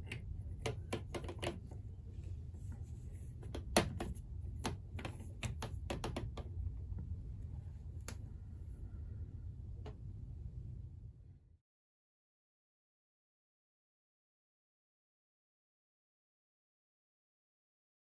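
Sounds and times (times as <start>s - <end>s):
fingers tapping wooden object: 0.1s - 1.6s, 3.4s - 6.5s.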